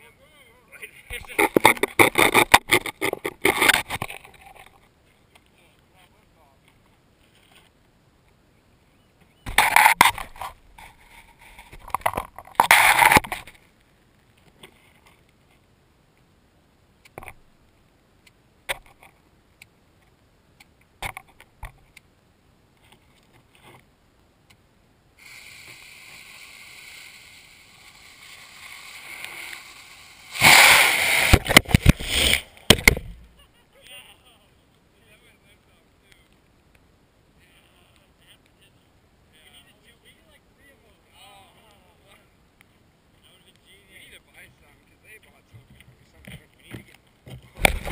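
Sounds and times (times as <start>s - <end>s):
fuse hissing: 25.2s - 32.6s
rocket motor whoosh: 25.2s - 32.6s
loud rustling bursts: 25.3s - 33.3s.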